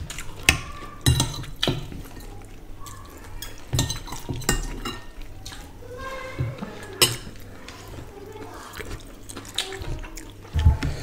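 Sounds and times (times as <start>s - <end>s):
spoon clinking on ceramic dishes: 0.5s - 2.3s, 3.4s - 5.1s, 7.0s - 7.3s.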